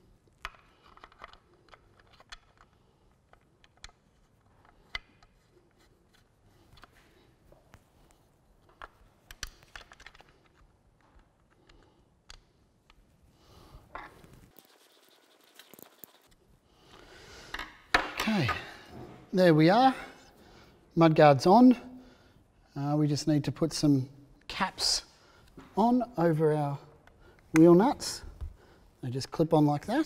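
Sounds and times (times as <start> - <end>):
plastic parts clicking and tapping: 0.3 - 5.5, 8.6 - 13.0, 17.4 - 18.6.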